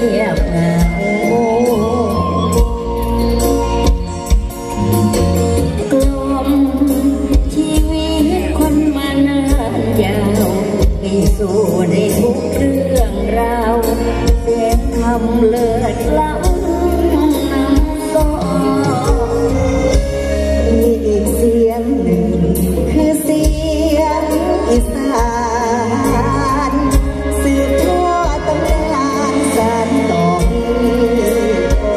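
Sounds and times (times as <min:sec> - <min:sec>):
band with deep bass beat: 0:00.0 - 0:31.9.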